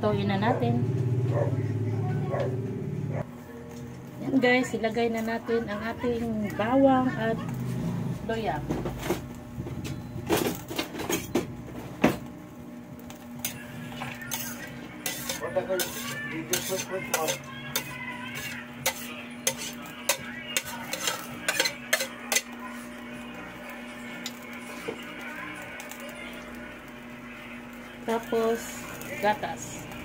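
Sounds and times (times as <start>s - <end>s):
metal spatula scraping wok: 13.4s - 22.8s.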